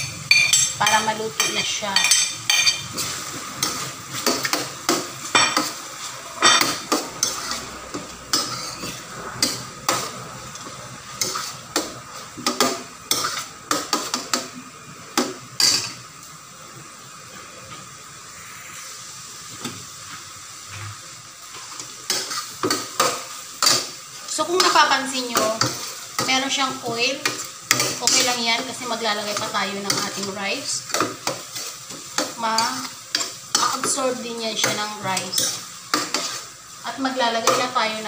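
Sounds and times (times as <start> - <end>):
food sizzling in a pan: 0.0 - 38.0
metal spoon scraping a pan: 5.4 - 14.3, 21.6 - 36.6.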